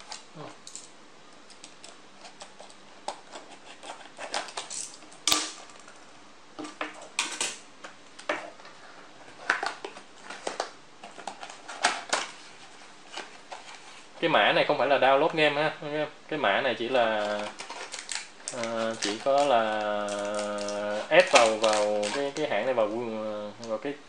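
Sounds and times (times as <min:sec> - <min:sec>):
packaging crackling and rustling: 0:08.4 - 0:14.2, 0:17.0 - 0:22.8.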